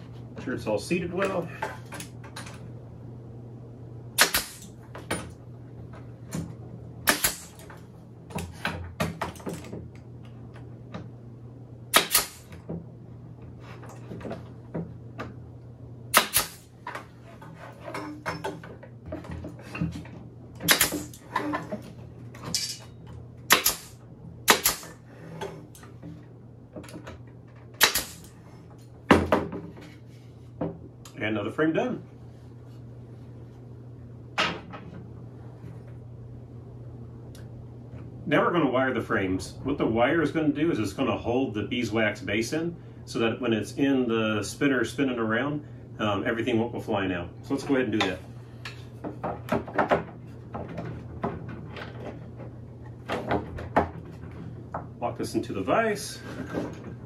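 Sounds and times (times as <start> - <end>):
nail gun firing: 4.2 - 4.8, 7.0 - 7.7, 11.9 - 12.6, 16.1 - 16.7, 20.6 - 21.2, 23.5 - 25.0, 27.8 - 28.3.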